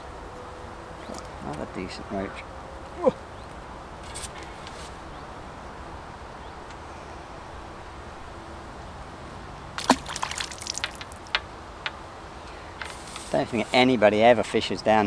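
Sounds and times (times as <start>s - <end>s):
faint outdoor background: 0.0s - 15.0s
water splashes: 9.8s - 11.4s.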